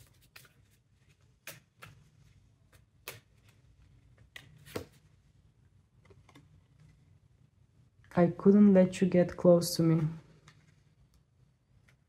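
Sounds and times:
cards shuffled flicks and taps: 0.0s - 5.0s.

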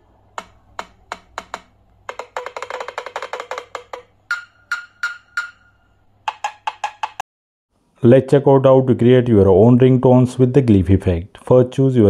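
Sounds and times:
phone speaker percussive hits: 0.4s - 5.7s, 6.3s - 7.2s.

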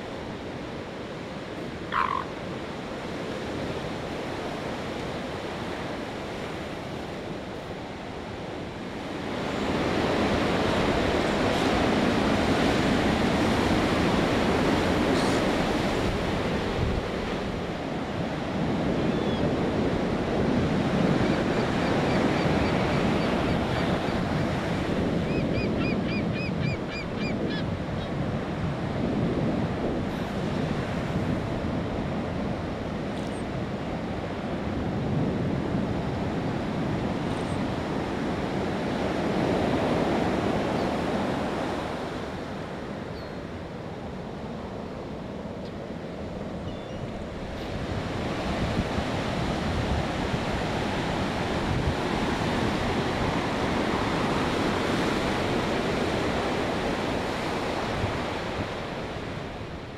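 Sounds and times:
ocean surf washing onto beach: 0.0s - 26.6s, 27.4s - 59.9s
bird calling short high notes: 1.9s - 2.3s.

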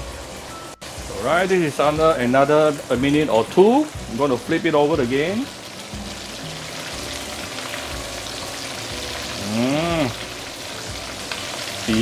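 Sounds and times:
meat sizzling in oil: 0.0s - 12.0s
person vocalizing: 9.3s - 10.3s.

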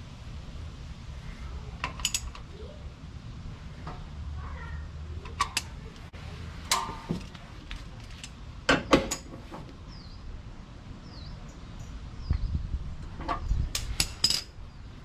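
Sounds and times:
wrench clicking on metal: 1.8s - 2.4s, 5.2s - 5.8s.

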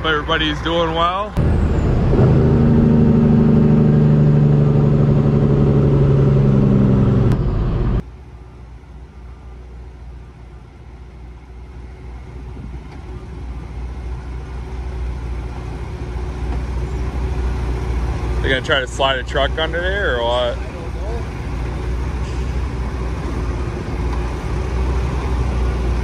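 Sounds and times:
diesel engine rumbling: 0.0s - 26.0s
loud low drone: 1.3s - 8.2s.

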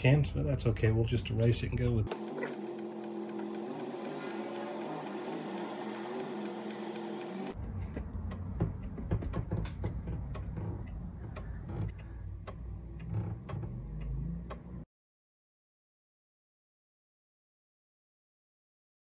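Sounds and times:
floppy drive rumble: 1.5s - 14.8s
sped-up hum of held tones: 2.1s - 7.6s.

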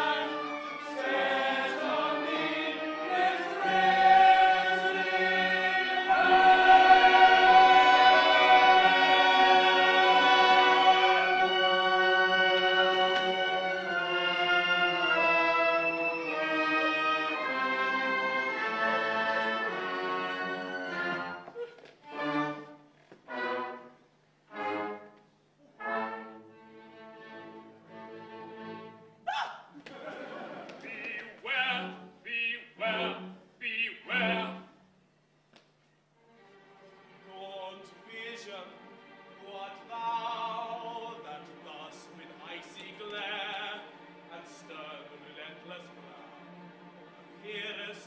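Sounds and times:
operatic chorus singing: 0.0s - 21.3s, 32.8s - 33.3s, 33.9s - 34.7s.

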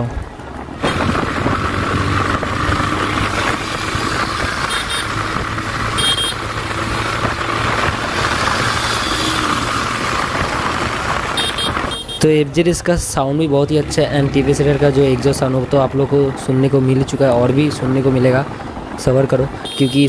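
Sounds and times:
motorcycle engine running: 0.8s - 12.2s.

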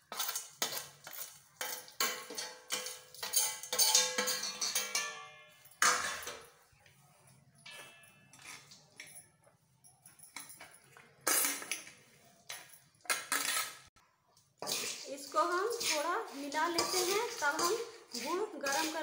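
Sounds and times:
nuts scraped into metal pan: 14.6s - 19.0s.

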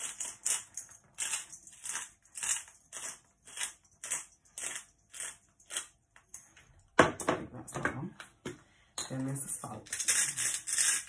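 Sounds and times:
pepper mill grinding: 0.0s - 6.0s, 9.8s - 11.0s.

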